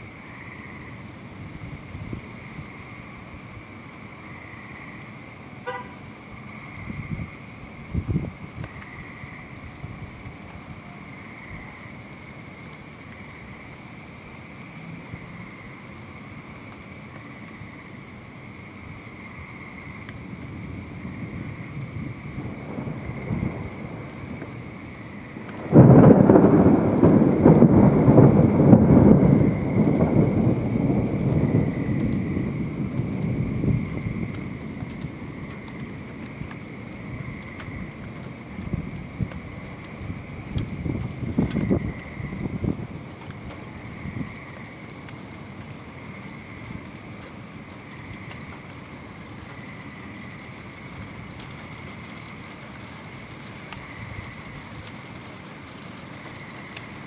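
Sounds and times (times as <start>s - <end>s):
steady rain: 0.0s - 57.0s
faint ticks: 8.0s - 11.9s, 16.6s - 17.6s, 23.4s - 25.9s, 31.2s - 57.0s
thunder clap and rumble: 20.1s - 57.0s.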